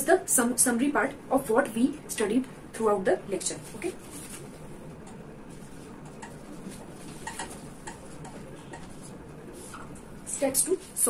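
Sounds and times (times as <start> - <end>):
room noise: 0.0 - 11.0
marker pen writing on whiteboard: 5.0 - 10.9.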